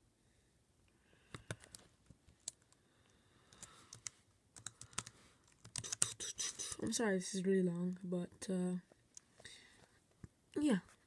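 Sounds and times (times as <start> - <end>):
laptop keyboard typing: 1.3 - 1.8, 3.5 - 6.7.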